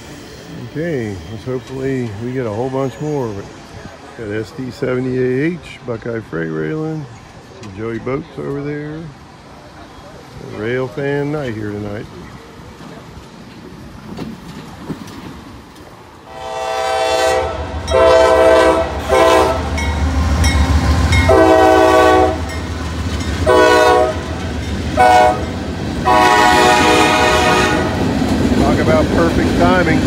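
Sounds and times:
diesel locomotive rumble: 0.0 - 30.0
locomotive air horn blasts: 16.3 - 19.9, 21.2 - 22.5, 23.4 - 24.4, 25.0 - 28.0.

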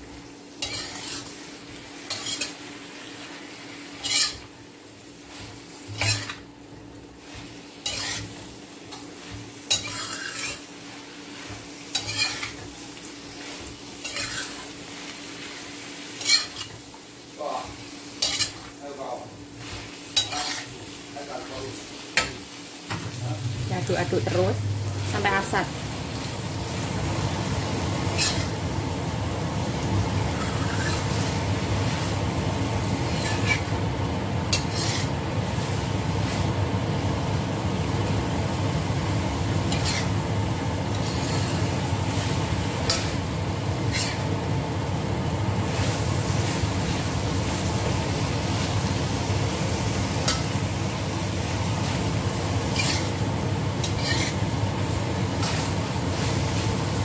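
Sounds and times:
food sizzling in a wok: 0.0 - 57.0
metal spatula scraping and tapping wok: 0.6 - 1.4, 2.1 - 2.6, 4.0 - 4.5, 5.4 - 6.4, 7.4 - 10.7, 11.4 - 12.7, 13.4 - 14.7, 16.2 - 16.8, 18.2 - 18.7, 19.7 - 20.8, 28.1 - 28.6, 30.3 - 31.2, 33.1 - 33.7, 34.5 - 35.1, 39.7 - 40.2, 42.8 - 44.3, 52.7 - 53.2, 53.8 - 54.5, 55.3 - 56.3.

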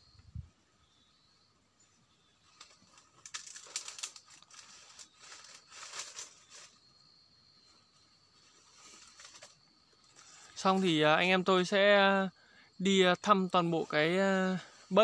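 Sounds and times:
dry leaves rustling: 2.4 - 6.9, 7.8 - 11.1, 13.6 - 15.0.

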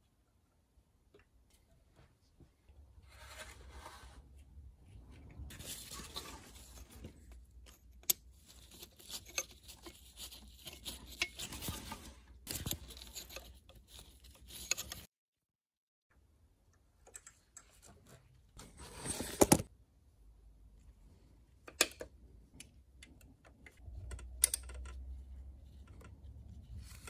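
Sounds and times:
hand tools scraping and clicking: 5.5 - 15.1.

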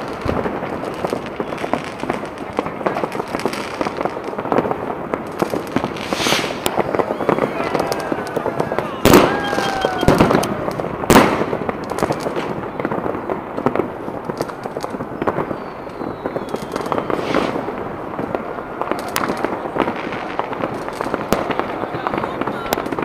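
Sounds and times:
firecrackers crackling: 0.0 - 23.0
fireworks bangs and pops: 0.0 - 23.0.

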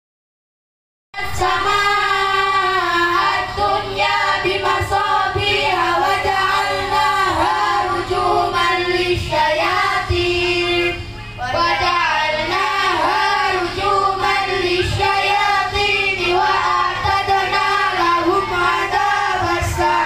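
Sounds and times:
children chanting in unison: 1.2 - 20.0.

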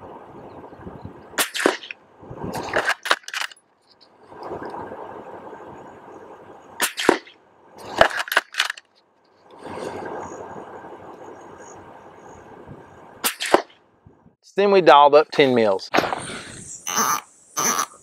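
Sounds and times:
faint outdoor hiss: 0.0 - 18.0.

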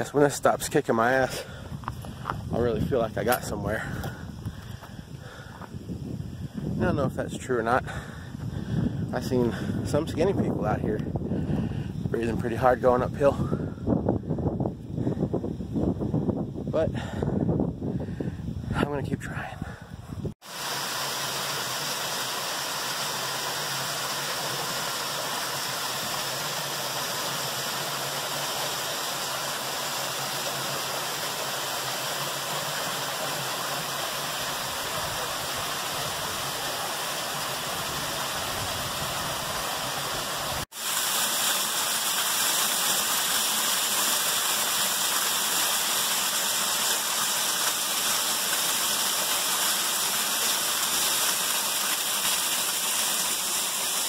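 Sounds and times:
waterfall rushing and splashing: 20.4 - 54.0.

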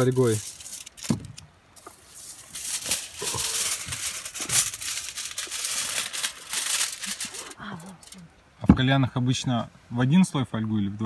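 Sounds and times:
aluminium foil crinkling: 0.0 - 8.2.

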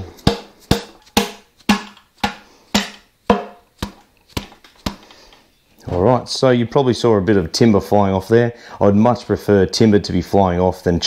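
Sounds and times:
mallet knocking on wood: 0.2 - 5.0.

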